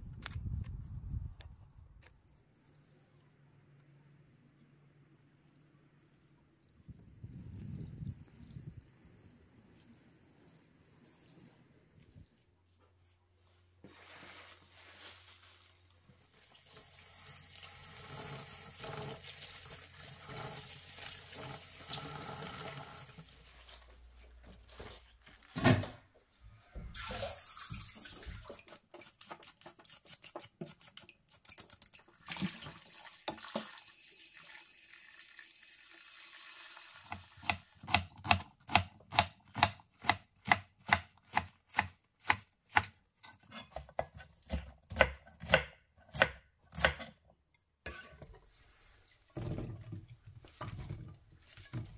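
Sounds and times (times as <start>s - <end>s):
water splashing over vegetables: 6.0s - 12.4s
tap water running into sink: 27.0s - 28.5s, 32.2s - 37.7s.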